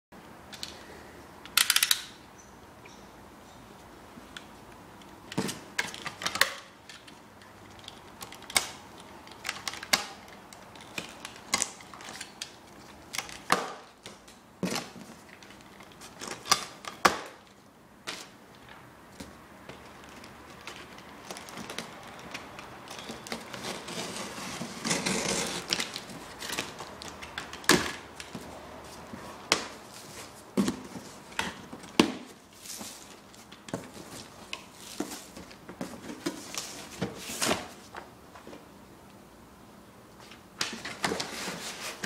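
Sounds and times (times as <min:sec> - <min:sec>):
utility knife slitting packing tape: 0:21.3 - 0:28.4
cardboard scraping and ripping: 0:23.0 - 0:27.0, 0:40.9 - 0:42.0.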